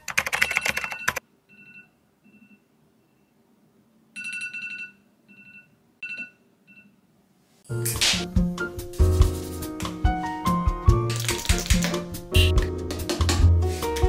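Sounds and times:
phone alarm beeps: 0:00.5 - 0:03.4.

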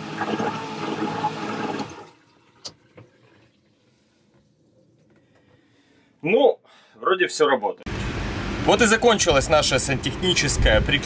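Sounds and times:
toilet pump motor with rushing water: 0:00.0 - 0:05.2.

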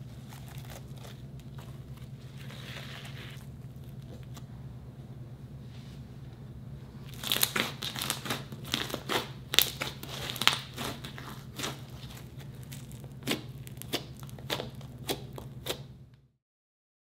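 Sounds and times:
steady low hum: 0:00.0 - 0:16.4
slime crackling and popping: 0:07.1 - 0:15.9.

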